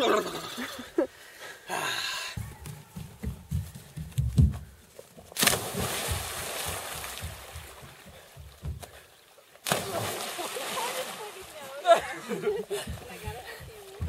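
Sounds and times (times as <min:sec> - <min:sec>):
bare feet thudding on wooden planks: 0:02.3 - 0:10.1, 0:12.3 - 0:14.0
person splashing into water: 0:05.3 - 0:08.1, 0:09.6 - 0:11.6.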